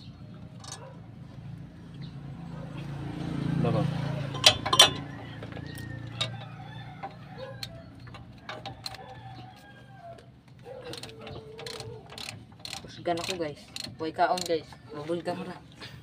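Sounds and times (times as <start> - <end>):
ratchet and wrenches clinking: 0.5 - 0.9, 4.2 - 9.4, 10.6 - 15.6
chickens clucking: 4.3 - 12.1.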